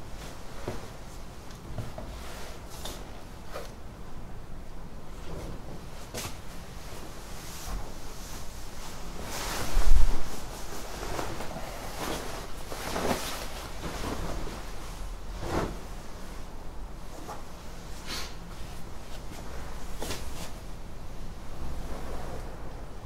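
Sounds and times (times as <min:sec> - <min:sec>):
fabric rustling and swishing: 0:00.0 - 0:03.8, 0:05.2 - 0:23.0.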